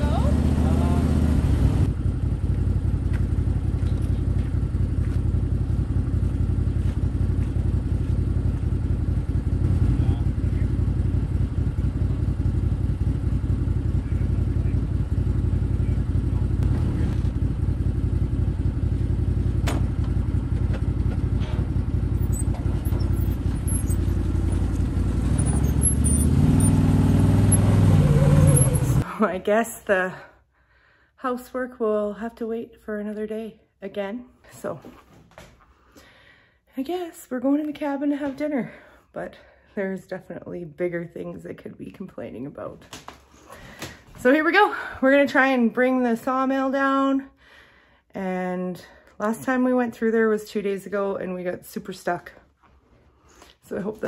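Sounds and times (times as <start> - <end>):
vehicle engine idling and revving: 0.0 - 29.1.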